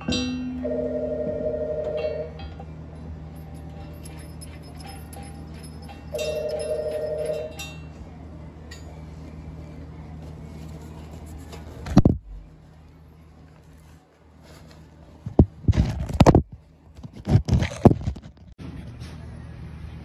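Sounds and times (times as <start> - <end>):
steady low hum: 0.0 - 20.0
clanks and knocks of handled tools: 2.4 - 8.0.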